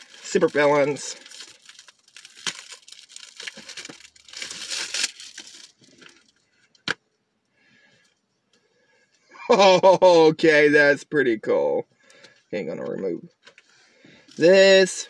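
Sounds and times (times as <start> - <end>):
packaging crinkling and tearing: 0.0 - 6.9.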